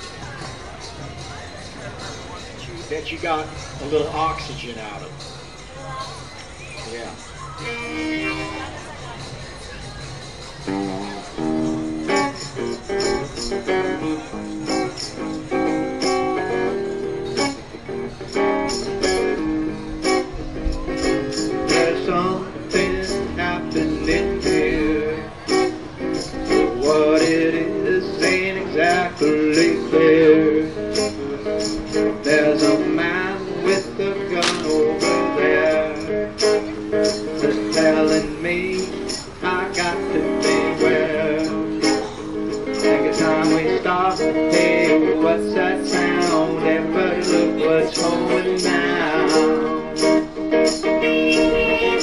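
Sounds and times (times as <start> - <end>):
acoustic guitar strumming: 7.6 - 9.2, 10.4 - 52.0
man singing into a microphone: 20.8 - 52.0
crisp percussion hits: 34.3 - 35.3.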